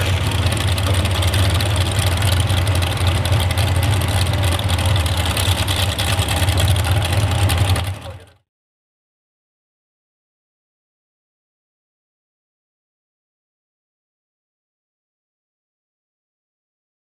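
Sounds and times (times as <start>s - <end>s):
tractor engines idling: 0.0s - 8.4s.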